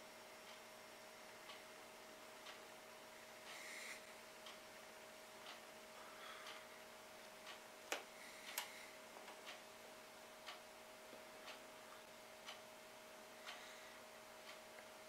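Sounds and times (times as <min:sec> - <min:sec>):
steady low hum: 0:00.0 - 0:15.0
clock ticking: 0:05.4 - 0:05.7, 0:10.4 - 0:10.7.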